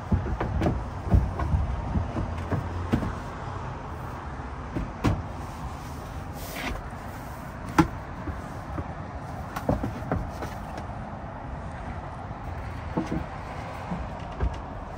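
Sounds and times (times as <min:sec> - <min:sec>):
panels knocking and clunking: 0:00.0 - 0:03.5, 0:04.6 - 0:05.4, 0:07.6 - 0:10.9, 0:12.6 - 0:14.9
steady background noise: 0:00.0 - 0:14.9.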